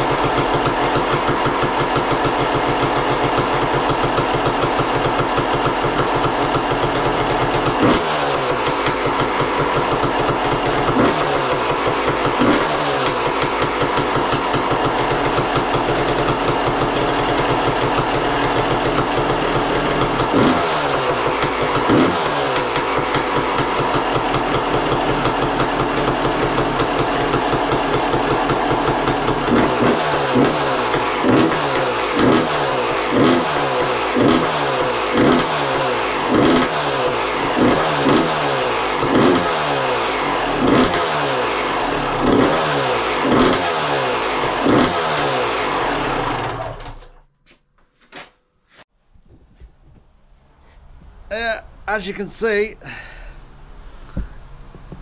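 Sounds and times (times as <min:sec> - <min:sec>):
two-stroke engine idling and revving: 0:00.0 - 0:47.3.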